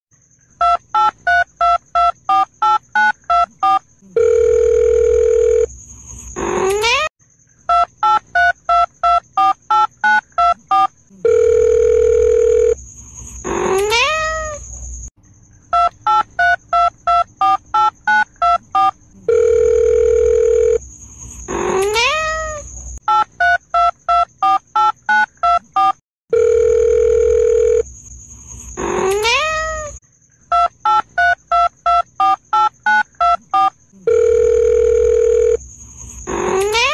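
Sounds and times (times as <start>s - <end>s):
telephone dial tone: 0.6s - 5.7s, 7.7s - 12.8s, 15.8s - 20.8s, 23.1s - 27.8s, 30.5s - 35.6s
keypad beeps: 7.7s - 11.4s, 15.8s - 19.5s, 23.1s - 26.5s, 30.5s - 34.2s
cat meowing: 13.6s - 14.6s, 21.6s - 22.6s, 28.9s - 30.0s.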